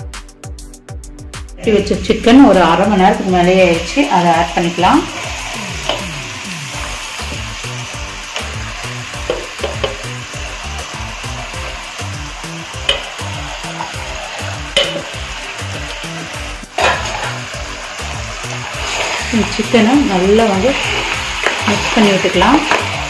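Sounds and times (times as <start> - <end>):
soft background music with beat: 0.0 - 23.0
chicken sizzling in pan: 2.8 - 23.0
pieces clattering in pan: 9.2 - 10.2, 12.7 - 19.4, 20.7 - 23.0.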